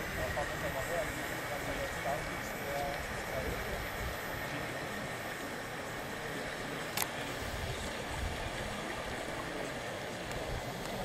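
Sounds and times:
water: 0:00.0 - 0:11.0
wind: 0:00.0 - 0:11.0.

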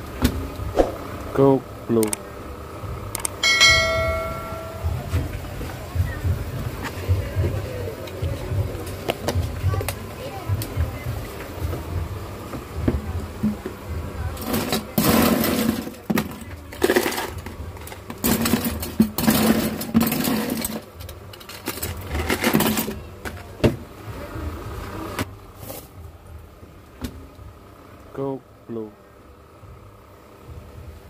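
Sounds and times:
steady low hum: 0:00.0 - 0:16.7, 0:23.0 - 0:31.0.

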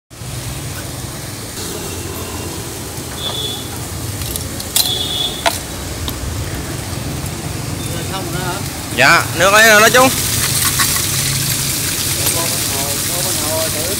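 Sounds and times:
electric pump humming: 0:01.5 - 0:06.0
water pouring and splashing: 0:05.6 - 0:13.9.

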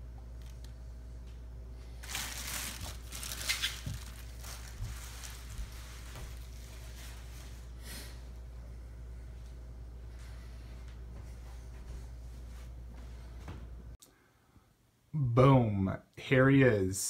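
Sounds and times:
plastic packaging crinkling: 0:01.9 - 0:07.8.

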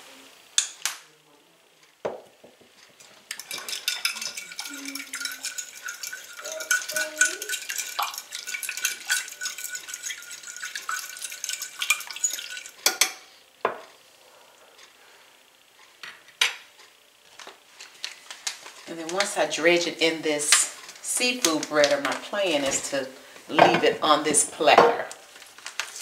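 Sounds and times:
fork beating eggs in dish: 0:03.0 - 0:13.2.

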